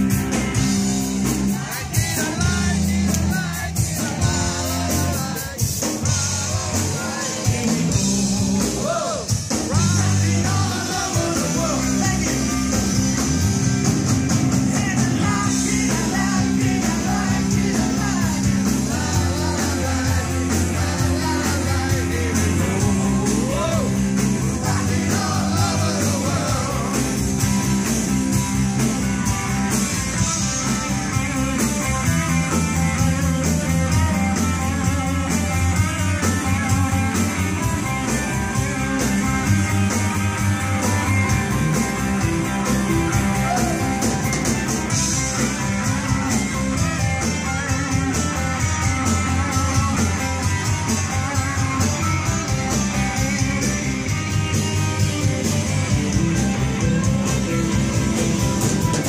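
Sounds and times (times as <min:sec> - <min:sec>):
drum kit: 0:00.0 - 0:59.0
electric guitars: 0:00.0 - 0:59.0
lead singer singing: 0:01.2 - 0:13.2, 0:14.6 - 0:27.4.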